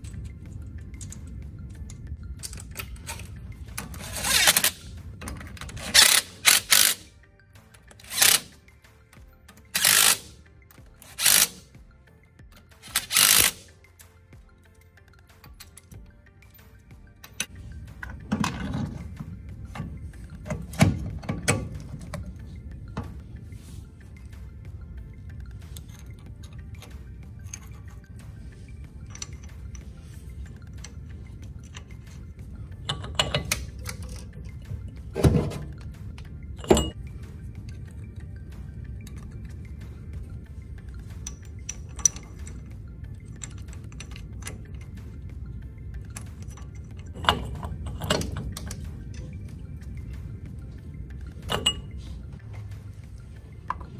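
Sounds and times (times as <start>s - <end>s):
metal hardware clinking: 0.0s - 11.8s, 12.4s - 53.9s
impact driver tightening bolts: 2.4s - 7.2s, 7.9s - 8.6s, 9.6s - 11.7s, 12.6s - 13.8s
socket and extension clanking: 17.2s - 23.4s, 29.0s - 37.0s, 46.0s - 53.9s.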